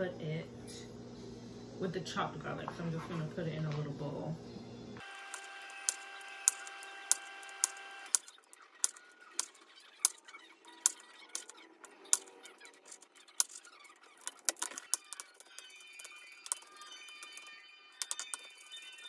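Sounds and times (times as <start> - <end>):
faint steady hum: 0.0 - 8.2.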